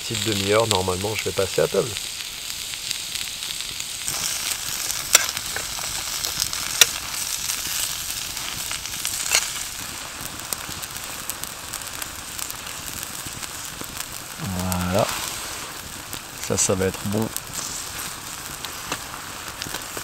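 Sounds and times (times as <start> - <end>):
vegetables sizzling in a pan: 0.0 - 20.0
sharp oil pops: 4.1 - 7.2, 9.1 - 9.7.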